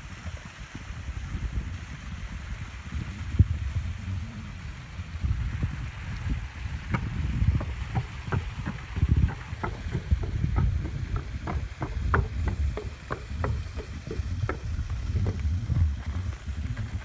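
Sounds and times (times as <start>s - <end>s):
hooves knocking on wooden boards: 6.8s - 17.0s.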